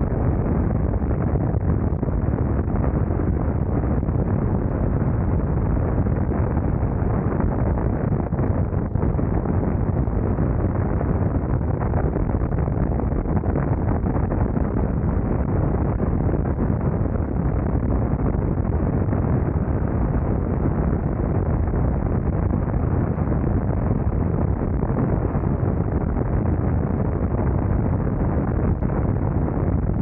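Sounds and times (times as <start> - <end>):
wind rushing over microphone: 0.0 - 30.0.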